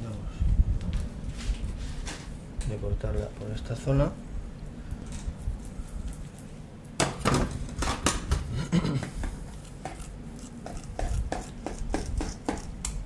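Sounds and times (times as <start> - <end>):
knife scraping on cutting board: 9.4 - 12.8.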